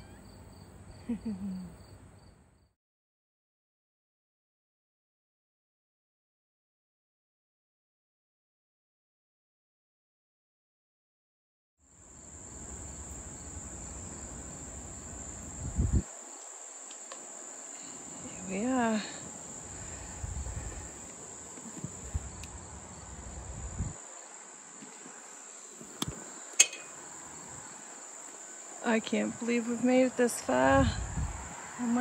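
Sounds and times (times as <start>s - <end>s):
insects droning: 0.0s - 2.7s, 11.8s - 32.0s
low microphone rumble: 19.7s - 21.0s, 30.4s - 31.6s.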